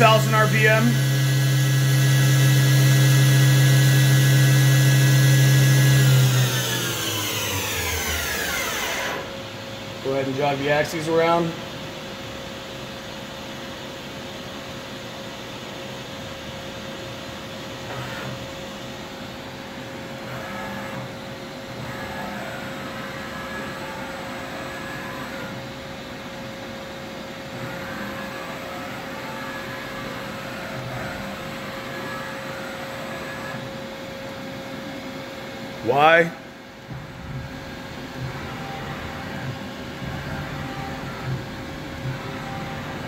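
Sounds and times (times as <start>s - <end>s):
machine axis drives whining: 0.0s - 9.4s, 27.6s - 33.8s, 35.8s - 43.0s
machine steady hum: 0.0s - 43.0s.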